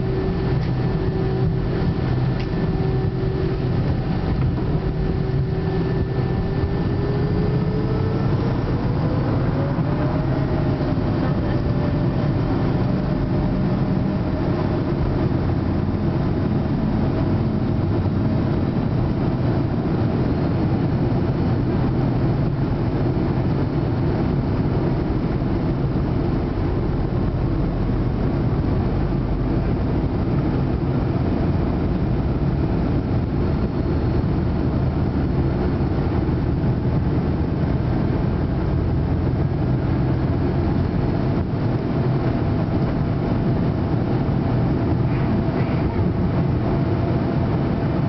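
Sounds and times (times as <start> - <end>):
jet engines droning at take-off: 0.0 - 48.0.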